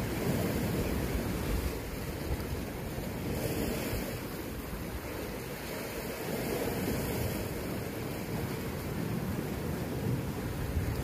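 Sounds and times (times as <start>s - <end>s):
waves washing against rocks: 0.0s - 11.0s
wind rumbling on microphone: 0.0s - 11.0s.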